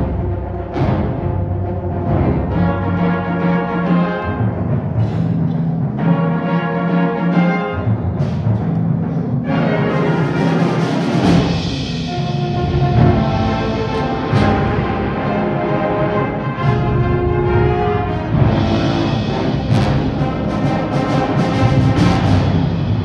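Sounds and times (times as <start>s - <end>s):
concert band playing chords: 9.5s - 23.0s.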